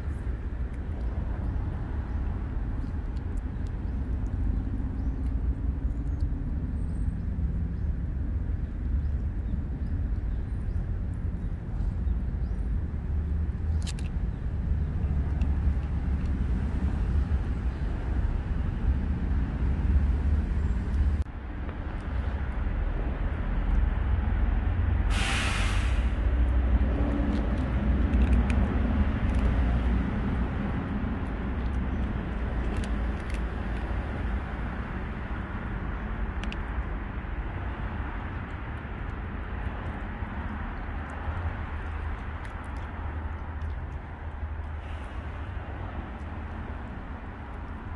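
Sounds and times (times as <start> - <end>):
low outdoor rumble: 0.0 - 47.9
sharp hiss: 25.1 - 26.2.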